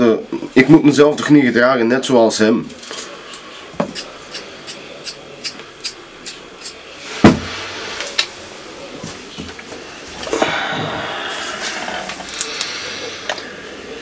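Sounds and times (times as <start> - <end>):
heavy thump: 7.2 - 7.6.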